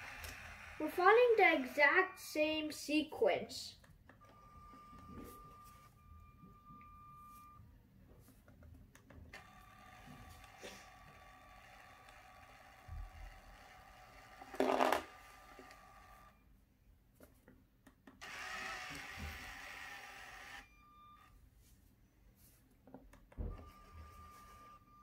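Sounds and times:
toy motors whirring: 0.0 - 3.0, 9.3 - 16.4, 18.2 - 20.7.

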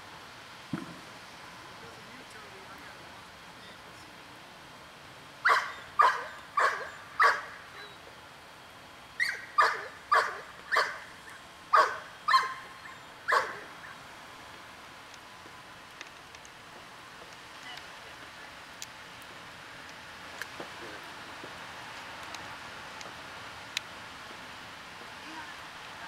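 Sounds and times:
dog barking: 5.4 - 7.6, 9.2 - 11.1, 11.7 - 12.6, 13.3 - 13.7.

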